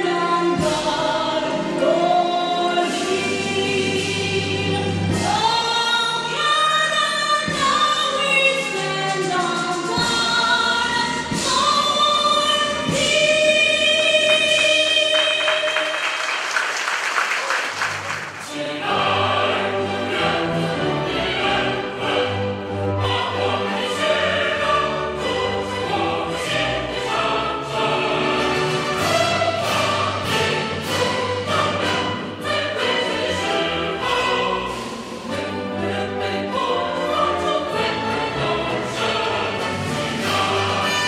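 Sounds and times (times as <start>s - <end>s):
crowd singing in unison: 0.0s - 16.0s, 18.3s - 41.0s
recorded choir and band playing: 0.0s - 16.0s, 18.1s - 41.0s.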